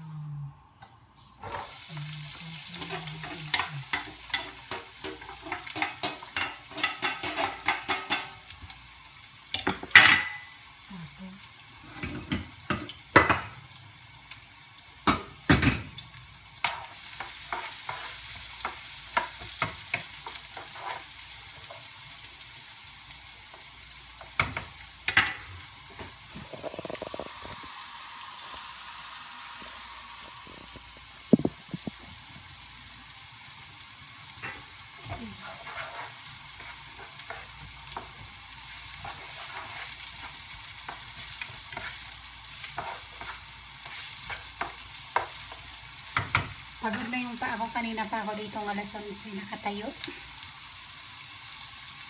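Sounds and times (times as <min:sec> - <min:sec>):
garlic and onion sizzling in oil: 0:01.2 - 0:52.0
spatula tapping and scraping pan: 0:02.8 - 0:08.4, 0:16.6 - 0:21.8, 0:35.4 - 0:47.1.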